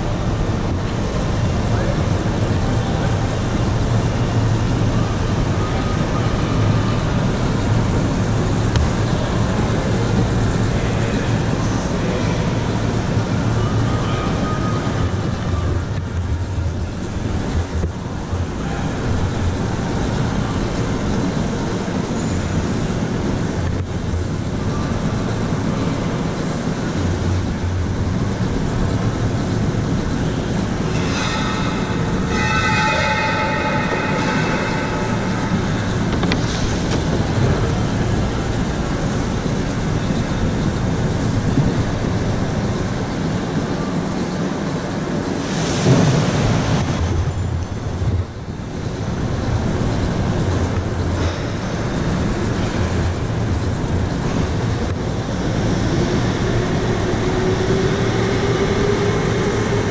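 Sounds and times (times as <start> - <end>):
go-kart motor and tyres rumbling: 0.0 - 59.9
high squeal: 10.9 - 15.9, 30.4 - 37.0.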